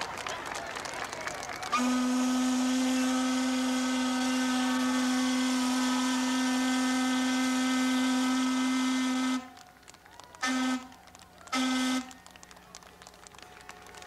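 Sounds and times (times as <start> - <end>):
steam whistle blast: 1.7 - 9.6, 10.4 - 12.2.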